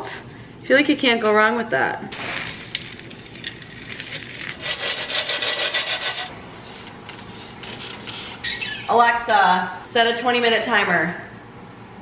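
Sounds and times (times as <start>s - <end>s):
spatula scraping metal baking sheet: 3.4s - 8.7s.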